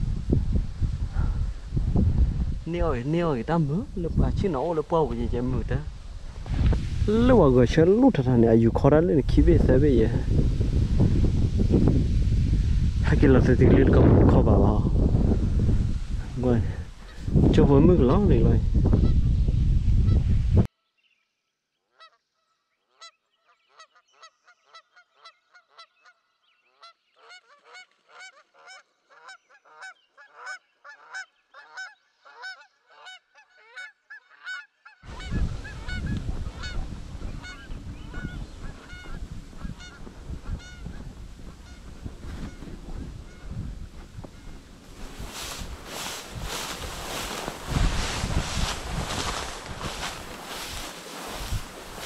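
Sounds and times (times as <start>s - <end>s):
rush of wind: 0.0s - 20.7s, 35.0s - 52.0s
wind noise on microphone: 0.0s - 20.7s, 35.0s - 52.0s
geese honking: 24.7s - 52.0s.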